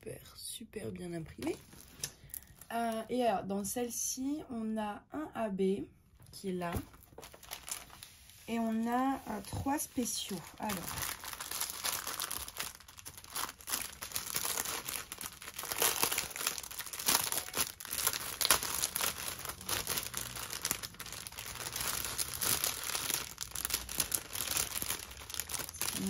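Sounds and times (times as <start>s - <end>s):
plastic bag crinkling: 1.4s - 3.1s, 6.7s - 26.0s.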